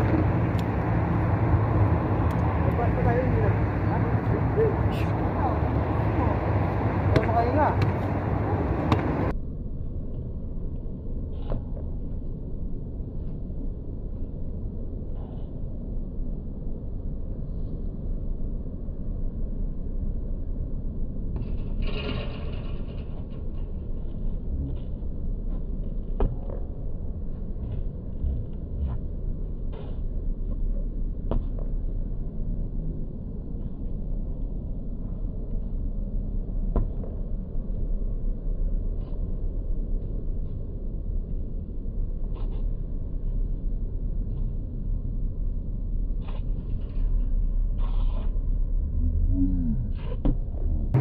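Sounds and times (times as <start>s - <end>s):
steady low rumble: 0.0s - 51.0s
basketball hitting hoop and bouncing: 8.8s - 9.3s.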